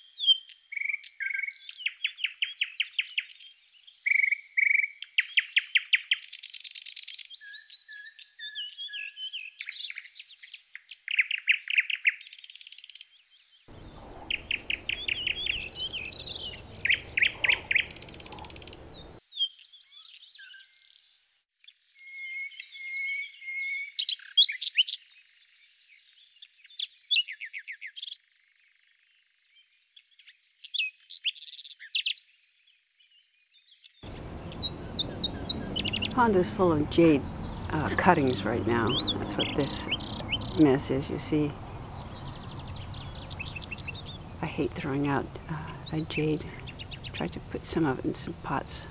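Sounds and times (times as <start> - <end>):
songbirds chirping: 0.0 - 48.9
low rustling: 13.7 - 19.2
bird trills and whistles: 13.8 - 19.2.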